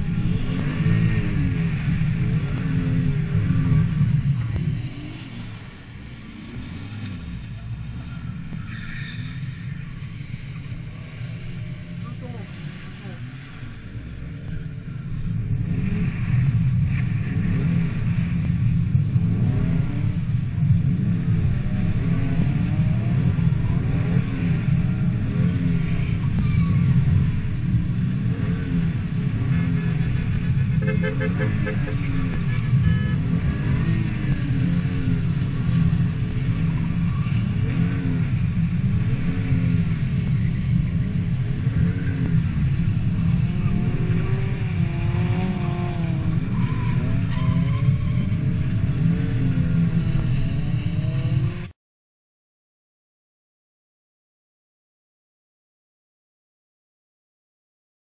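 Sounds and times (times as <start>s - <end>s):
car engine revving: 0.0s - 51.7s
car engine revving hard: 26.9s - 51.5s.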